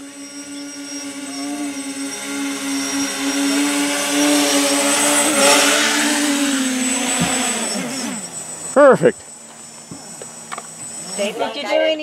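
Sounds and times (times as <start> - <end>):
quadcopter motors humming: 0.0 - 12.0.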